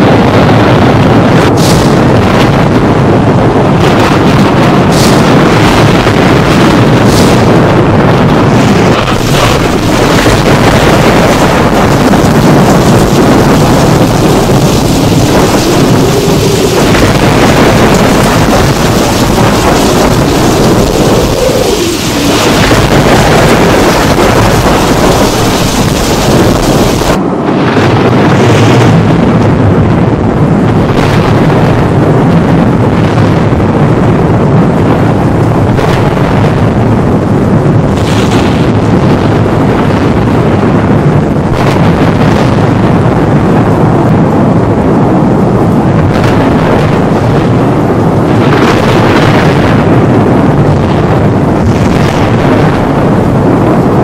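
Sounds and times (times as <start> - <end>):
rumbling thunder: 0.0 - 54.0
rain falling: 8.8 - 27.2.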